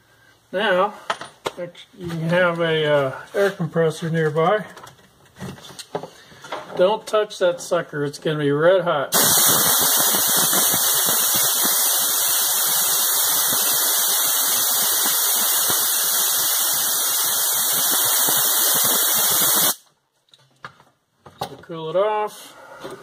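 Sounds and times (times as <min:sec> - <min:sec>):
compressed air hissing: 0:09.1 - 0:19.8.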